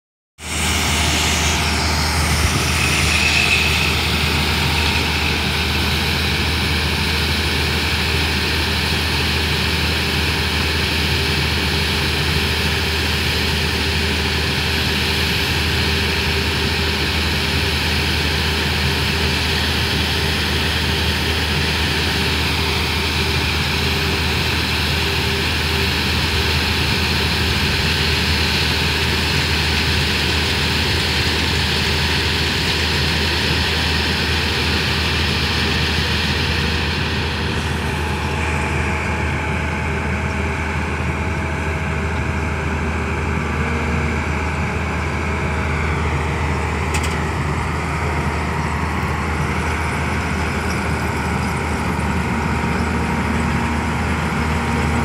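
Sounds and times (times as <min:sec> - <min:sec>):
brief high whine: 0:00.4 - 0:07.2
diesel engine drone: 0:00.4 - 0:55.0.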